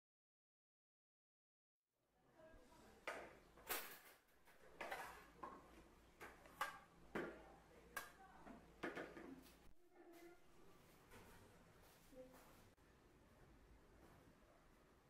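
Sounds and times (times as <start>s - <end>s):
plates and cutlery clinking: 3.1s - 7.4s.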